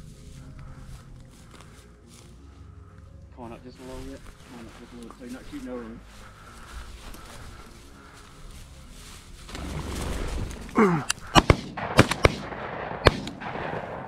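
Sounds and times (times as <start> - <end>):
shotgun shots: 11.3 - 14.0.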